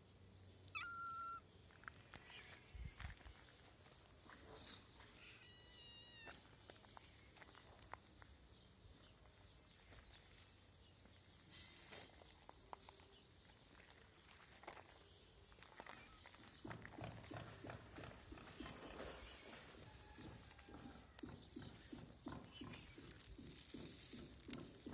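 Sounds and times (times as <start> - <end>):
kitten meowing: 0.7 - 1.4, 5.2 - 6.4.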